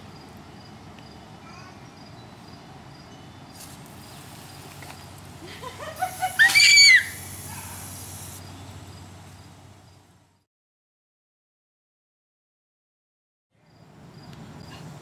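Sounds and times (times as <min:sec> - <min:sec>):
hose nozzle spray hissing: 0:06.0 - 0:08.4
toddler squealing: 0:06.3 - 0:07.7.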